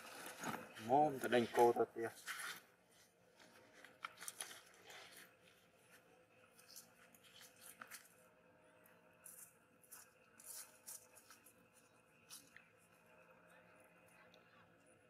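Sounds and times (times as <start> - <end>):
faint rustles and crunches: 0.0 - 8.3, 9.2 - 13.0.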